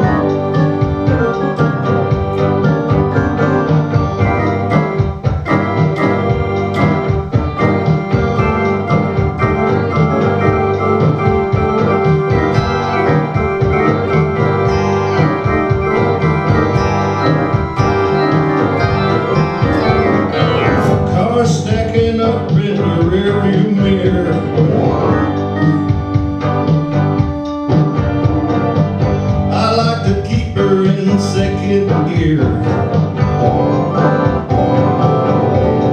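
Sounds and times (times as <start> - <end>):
person singing into a microphone: 0.0 - 26.5, 29.5 - 33.0
clicking beat: 0.0 - 35.9
electronic keyboard organ chords: 0.0 - 35.9.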